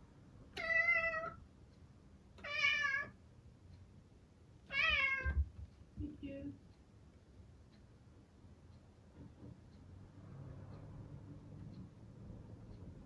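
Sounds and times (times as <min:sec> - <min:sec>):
cat meowing loudly: 0:02.4 - 0:03.2, 0:04.7 - 0:05.4.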